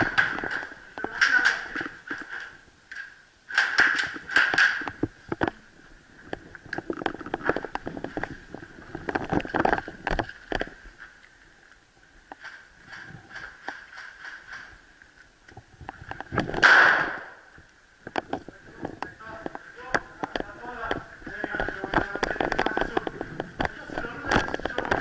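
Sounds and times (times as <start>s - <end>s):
sharp echoing cracks: 3.5s - 5.0s, 16.5s - 17.5s.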